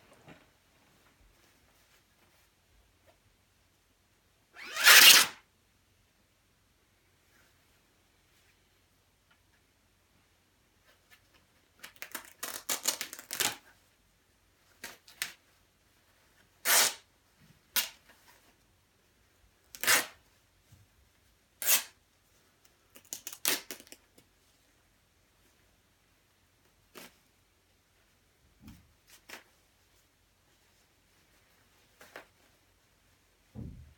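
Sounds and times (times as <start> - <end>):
crackly fabric rustling: 0.0 - 3.5, 24.0 - 33.9
fabric tearing: 4.6 - 5.4, 12.2 - 13.6, 16.6 - 17.0, 19.8 - 20.2, 21.6 - 22.0.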